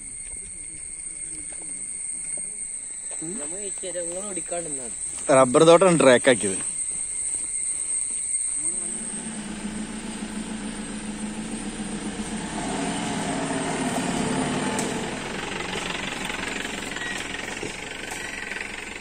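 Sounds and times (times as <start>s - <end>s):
vehicle engine running: 8.6s - 19.0s.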